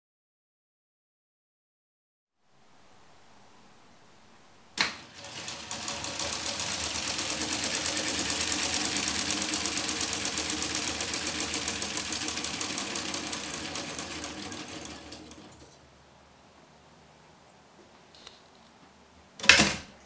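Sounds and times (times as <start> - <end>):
fast rhythmic clatter of reel: 5.0 - 15.7
drill turning plastic gears: 5.1 - 15.7.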